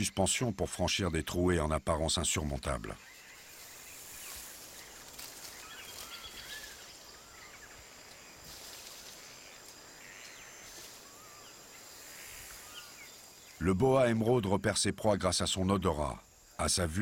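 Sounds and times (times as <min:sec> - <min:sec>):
high insect drone: 0:00.0 - 0:17.0
chirping bird calls: 0:02.2 - 0:14.1.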